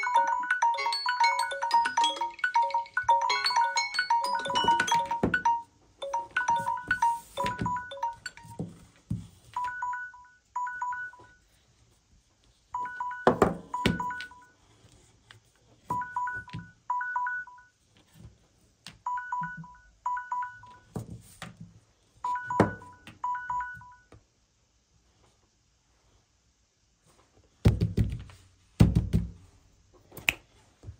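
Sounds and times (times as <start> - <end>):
phone timer two-tone beeps: 0.0 - 8.6, 9.6 - 11.4, 12.8 - 14.5, 15.9 - 17.7, 19.1 - 20.8, 22.3 - 24.1.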